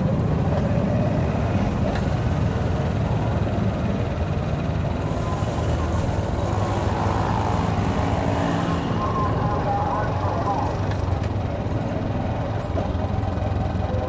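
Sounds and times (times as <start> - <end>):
motorcycles and cars passing: 0.0 - 14.0
vehicle engine running: 0.0 - 14.0.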